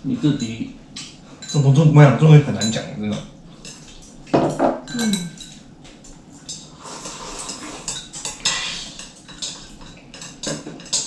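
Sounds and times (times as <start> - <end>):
chopsticks clinking on bowls: 0.2 - 1.8, 2.4 - 11.0.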